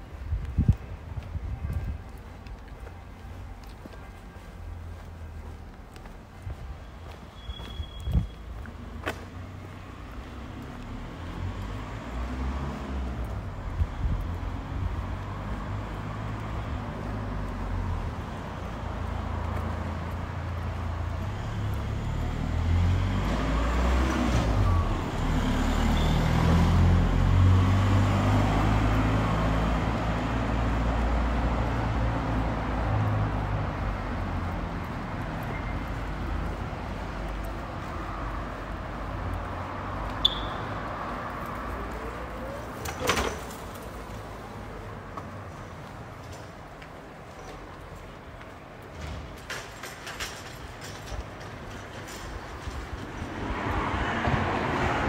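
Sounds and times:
steady traffic rumble: 0.0 - 55.0
car passing: 8.8 - 47.1, 53.1 - 55.0.

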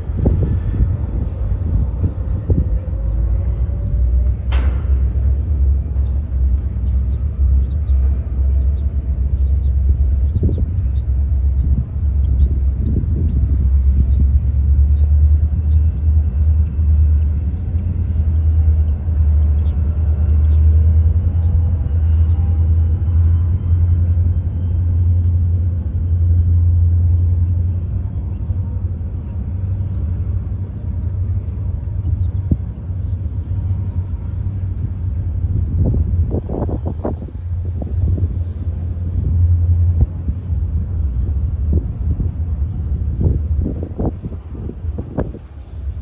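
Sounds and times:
diesel locomotives rumbling: 0.0 - 46.0.

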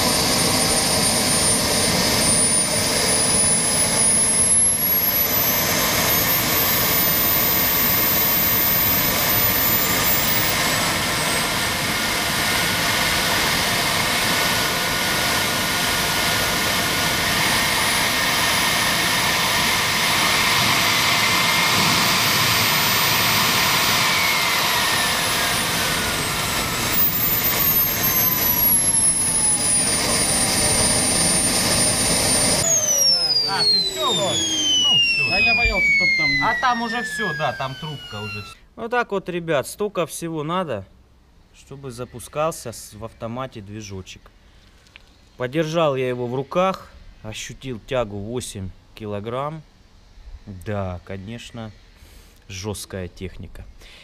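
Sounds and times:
jet engine rush with whine: 0.0 - 38.6.

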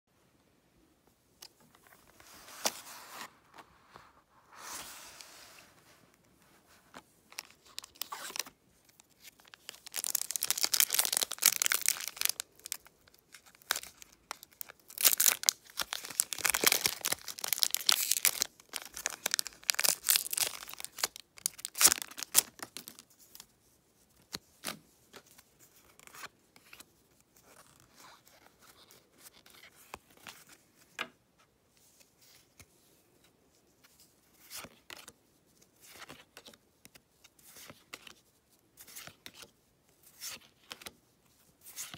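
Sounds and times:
cards rustling and clicking: 6.8 - 23.5, 38.8 - 41.0
foil wrapper crinkling and ripping: 9.5 - 23.0.

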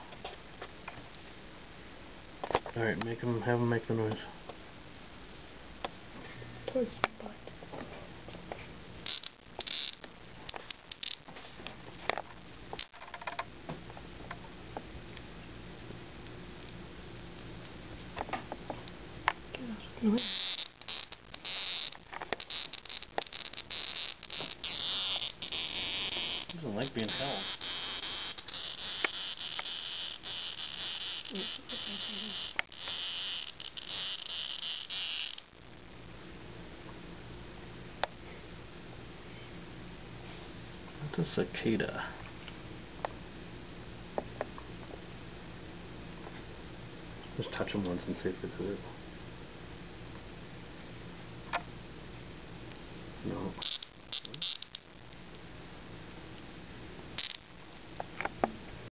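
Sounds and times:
cicada buzzing: 9.0 - 11.4, 20.0 - 35.6, 53.4 - 55.0, 57.2 - 57.6.

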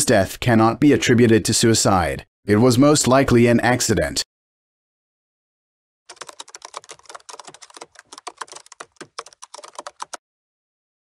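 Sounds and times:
keyboard typing: 6.1 - 10.2.

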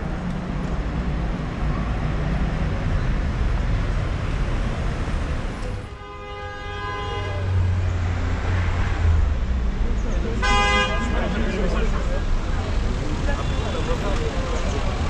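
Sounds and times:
city street traffic: 0.0 - 15.0
vehicle horn: 5.8 - 7.7, 10.4 - 11.3.

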